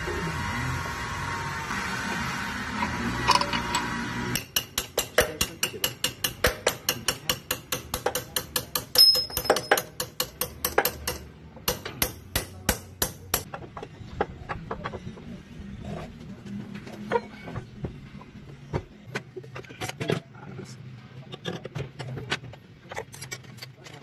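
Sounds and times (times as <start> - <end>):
metal clank with ring: 8.7 - 10.0.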